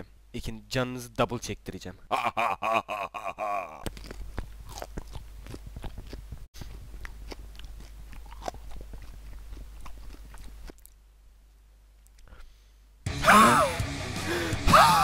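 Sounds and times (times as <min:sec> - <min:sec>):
man chewing crunchy peppers: 0:03.4 - 0:11.2.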